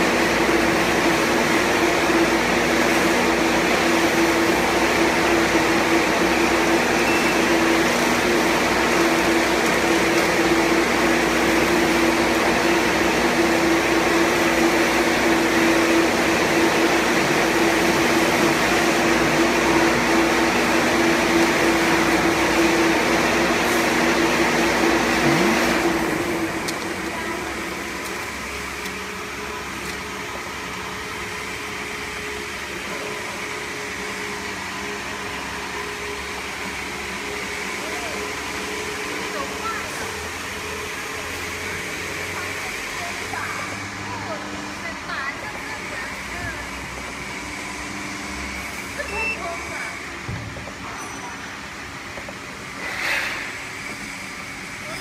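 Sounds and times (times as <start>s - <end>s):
air compressor humming: 0.0s - 55.0s.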